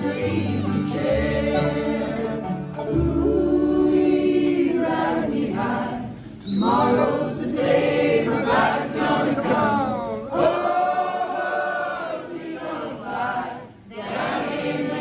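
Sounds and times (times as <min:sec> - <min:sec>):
bluegrass band playing: 0:00.0 - 0:07.1
voices singing in harmony: 0:00.0 - 0:15.0.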